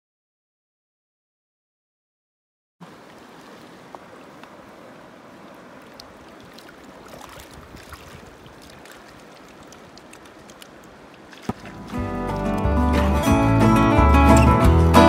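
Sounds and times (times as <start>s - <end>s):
river water rushing: 2.8s - 15.0s
small splashes and clicks: 3.1s - 4.6s, 5.5s - 12.7s.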